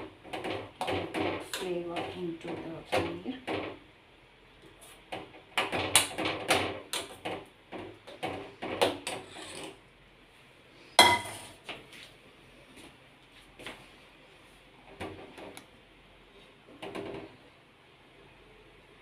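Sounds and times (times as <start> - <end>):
spoon clinking against steel pot: 11.0 - 11.4
steel dishware clang: 11.0 - 11.5.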